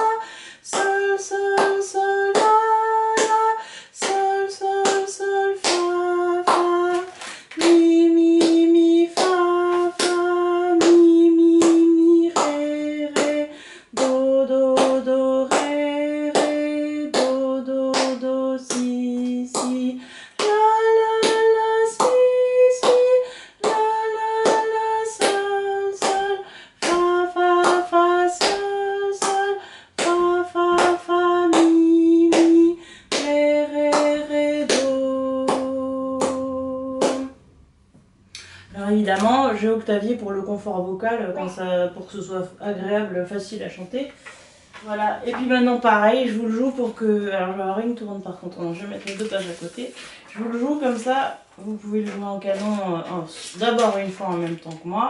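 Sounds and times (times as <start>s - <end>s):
woman singing a scale: 0.0s - 37.4s, 38.4s - 44.1s.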